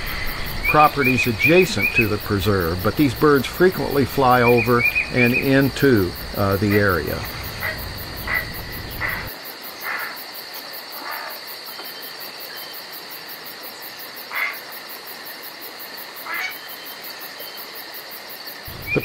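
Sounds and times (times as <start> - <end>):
high insect drone: 0.0 - 19.0
short animal calls: 4.4 - 9.3.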